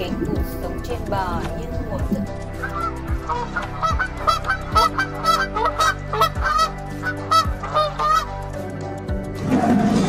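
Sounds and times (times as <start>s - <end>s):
geese honking: 2.6s - 8.6s.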